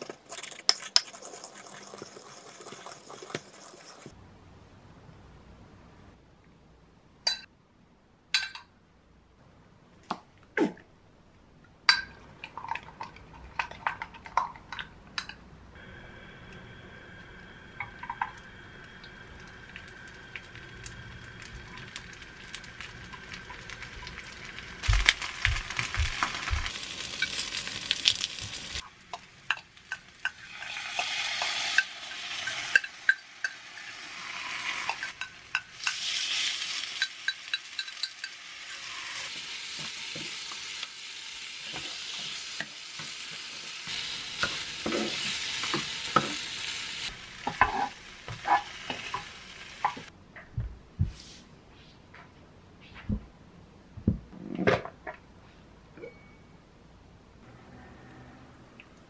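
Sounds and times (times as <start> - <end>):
tofu sizzling in oil: 18.7 - 50.1.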